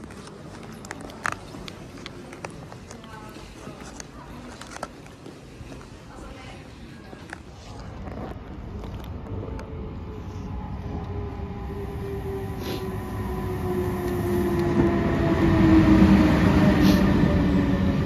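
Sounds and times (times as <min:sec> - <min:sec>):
train rumble: 0:08.4 - 0:18.0.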